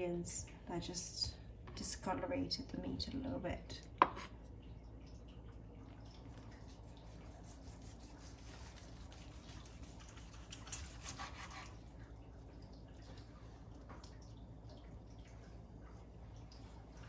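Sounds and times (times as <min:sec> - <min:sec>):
knife slicing roast meat: 0:07.2 - 0:11.8.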